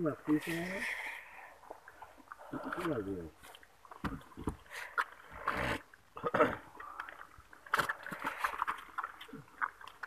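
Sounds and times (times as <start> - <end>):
water sloshing and dripping: 0.0 - 10.0
wet fishing net hauled by hand: 7.2 - 10.0.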